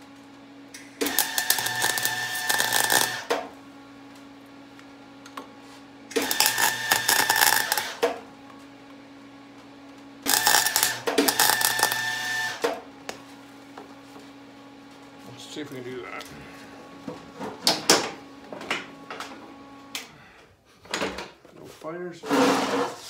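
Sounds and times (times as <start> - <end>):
electric welder crackling: 0.0 - 4.4, 6.1 - 8.3, 10.2 - 13.2.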